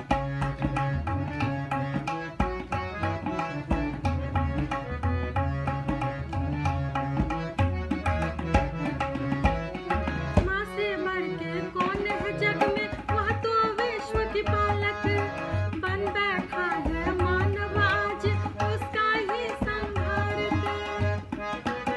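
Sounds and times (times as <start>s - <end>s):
instrumental backing with drum beat: 0.0s - 21.9s
woman singing: 10.4s - 21.3s.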